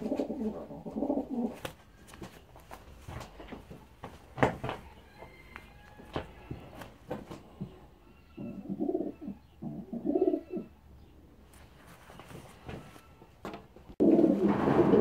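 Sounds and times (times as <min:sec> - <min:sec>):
pigeons cooing: 0:00.0 - 0:01.6, 0:07.8 - 0:10.8, 0:14.0 - 0:15.0.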